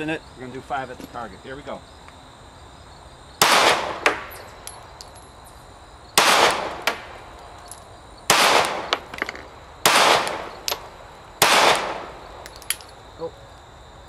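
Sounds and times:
pistol shots: 0:03.4 - 0:04.5, 0:06.2 - 0:07.2, 0:08.3 - 0:12.4.

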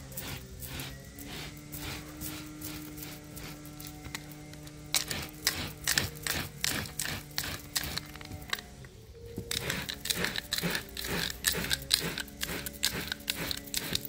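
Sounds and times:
roller scraping over carpet: 0:00.0 - 0:08.7.

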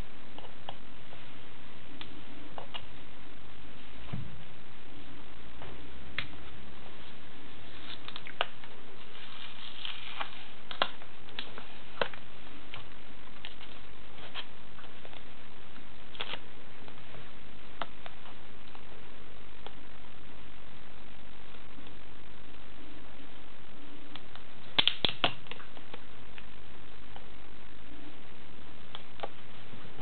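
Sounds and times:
steady hiss: 0:00.0 - 0:30.0
sticker label crackling: 0:24.1 - 0:26.5.

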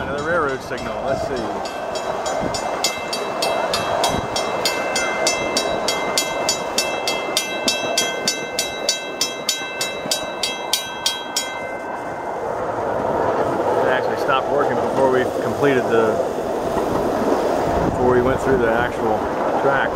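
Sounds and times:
crossing signal bell ringing: 0:00.0 - 0:13.4
miniature train rolling on track: 0:00.0 - 0:19.9.

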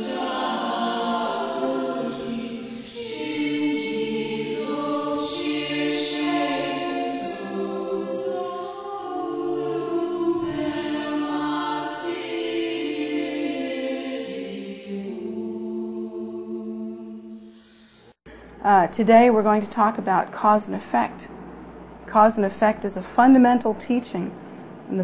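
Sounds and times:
choir singing held notes: 0:00.0 - 0:18.2.

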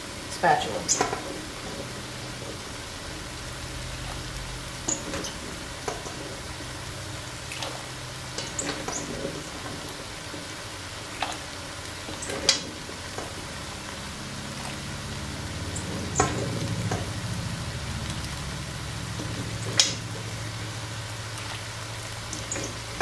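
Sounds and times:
water boiling: 0:00.0 - 0:23.0
small splashes: 0:00.4 - 0:23.0.

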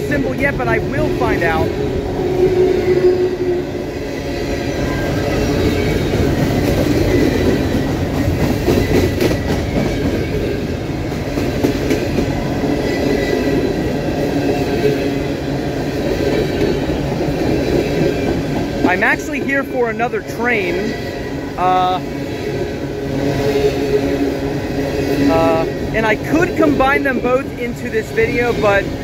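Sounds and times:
freight train wheels rumbling on rails: 0:00.0 - 0:29.0
train cars clanking: 0:00.0 - 0:29.0.

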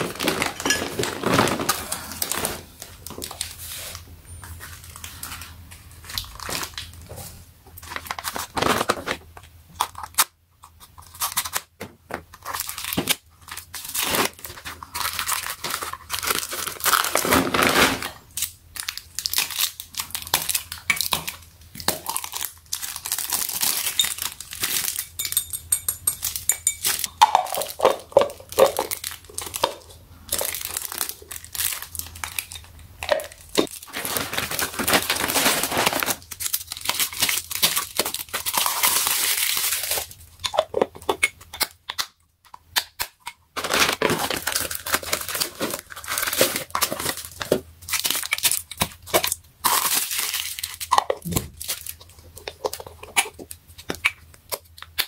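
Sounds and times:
plastic bag crinkling: 0:00.0 - 0:04.0, 0:12.4 - 0:21.4, 0:22.0 - 0:25.2, 0:26.2 - 0:40.4, 0:43.6 - 0:53.6.

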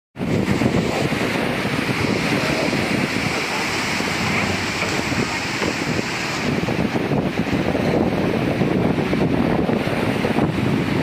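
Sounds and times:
wind buffeting microphone: 0:00.2 - 0:11.0
surf breaking on concrete: 0:00.7 - 0:07.4.

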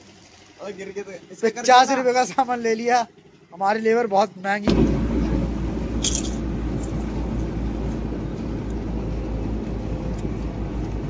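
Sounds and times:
van engine rumble: 0:00.0 - 0:11.0
road noise inside cabin: 0:04.8 - 0:11.0.

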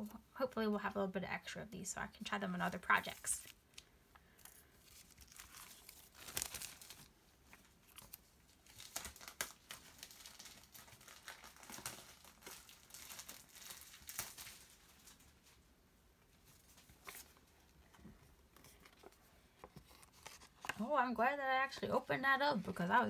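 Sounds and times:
plastic wrapper crinkling: 0:02.9 - 0:15.6.

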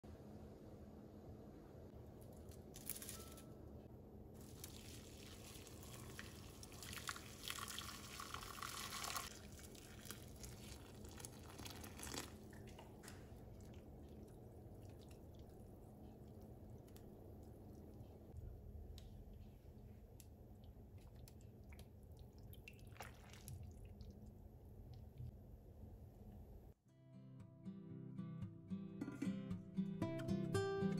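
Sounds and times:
water pouring: 0:04.4 - 0:18.0, 0:21.0 - 0:24.3
water dripping: 0:04.4 - 0:25.3.

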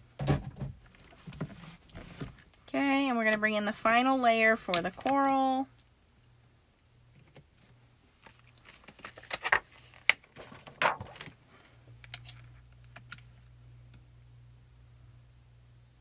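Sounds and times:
low steady hum: 0:00.0 - 0:16.0
plastic clicks and crinkles: 0:07.2 - 0:11.4, 0:12.0 - 0:14.0.

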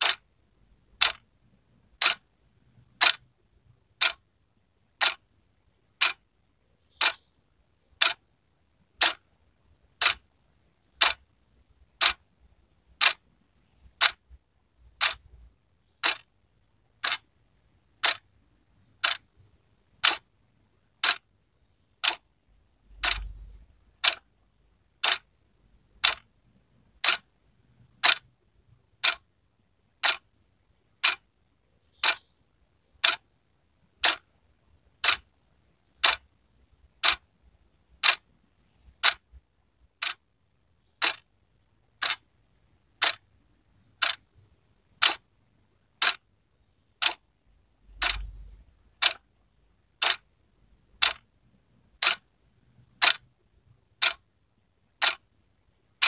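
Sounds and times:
wall clock ticking: 0:00.0 - 0:00.3, 0:00.9 - 0:04.3, 0:04.9 - 0:05.2, 0:05.9 - 0:07.3, 0:07.9 - 0:12.3, 0:12.9 - 0:20.3, 0:20.9 - 0:25.3, 0:25.9 - 0:29.3, 0:29.9 - 0:33.3, 0:33.9 - 0:40.3, 0:40.9 - 0:42.4, 0:43.0 - 0:45.3, 0:46.0 - 0:46.3, 0:47.0 - 0:47.2, 0:47.9 - 0:49.3, 0:50.0 - 0:50.3, 0:50.9 - 0:51.3, 0:51.9 - 0:53.4, 0:54.0 - 0:54.3, 0:54.9 - 0:55.3.

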